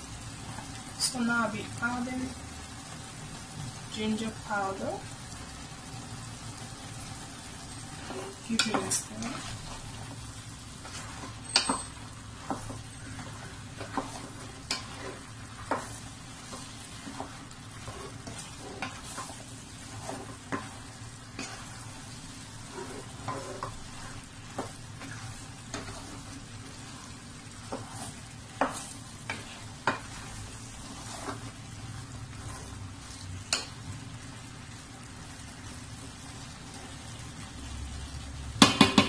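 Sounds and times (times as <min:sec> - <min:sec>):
food sizzling: 0:00.0 - 0:39.0
spatula scraping a metal pot: 0:10.8 - 0:21.8, 0:22.5 - 0:31.6, 0:32.3 - 0:33.6.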